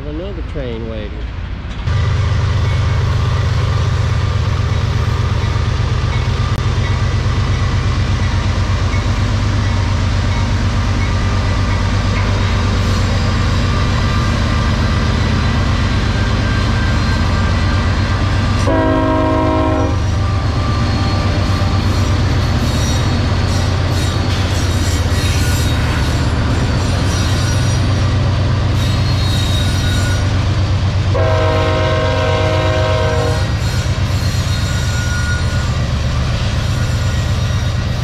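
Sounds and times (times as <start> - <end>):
diesel locomotives rumbling past: 0.0 - 38.0
train horn blast: 18.6 - 20.4, 31.1 - 33.9.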